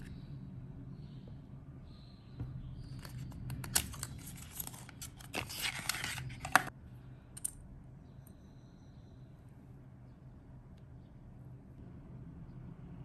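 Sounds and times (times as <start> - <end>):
card and plastic rustling: 2.9 - 6.7.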